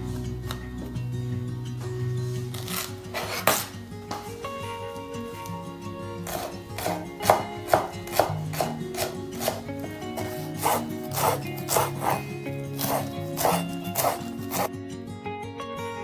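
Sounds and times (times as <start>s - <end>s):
soft background music: 0.0s - 16.0s
knife chopping on wooden board: 2.7s - 3.7s, 6.2s - 14.7s.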